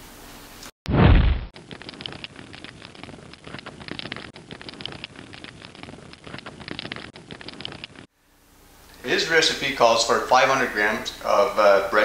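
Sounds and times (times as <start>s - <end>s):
fire crackling and popping: 1.0s - 8.1s.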